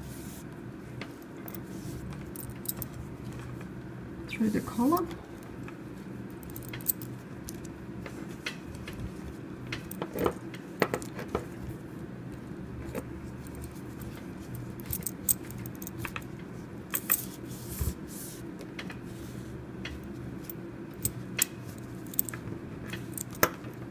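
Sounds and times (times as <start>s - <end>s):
metal buckle clinking: 6.4s - 7.7s, 13.4s - 16.3s.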